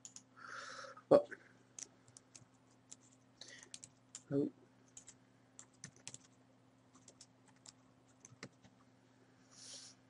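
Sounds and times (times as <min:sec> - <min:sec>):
computer keyboard typing: 0:00.0 - 0:00.3, 0:01.8 - 0:04.3, 0:04.9 - 0:08.7.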